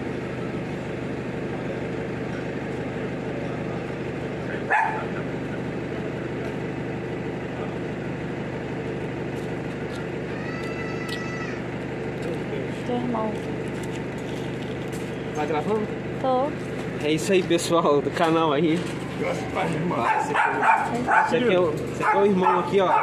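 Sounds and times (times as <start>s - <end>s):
truck engine idling: 0.0s - 23.0s
dog bark: 4.7s - 5.1s, 20.0s - 23.0s.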